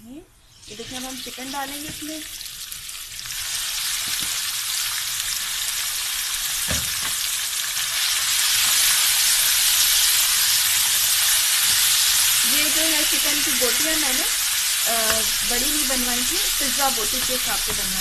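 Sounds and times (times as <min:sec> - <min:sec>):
chicken sizzling in hot oil: 0:00.5 - 0:18.0.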